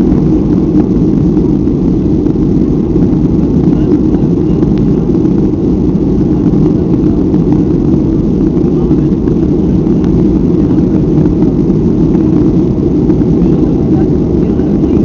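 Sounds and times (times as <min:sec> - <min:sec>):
airflow over fuselage: 0:00.0 - 0:15.0
jet engines at high power: 0:00.0 - 0:15.0.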